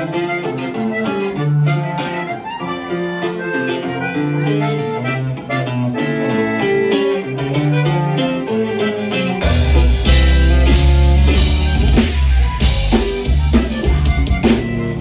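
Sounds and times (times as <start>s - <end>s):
button accordion melody: 0.0s - 15.0s
strummed bajo sexto: 0.0s - 15.0s
electric bass line: 9.2s - 15.0s.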